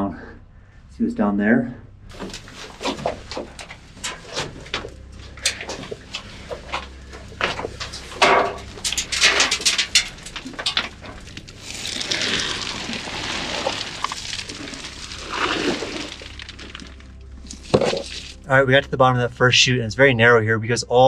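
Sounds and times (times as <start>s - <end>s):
steady hissing rush: 2.1s - 19.6s.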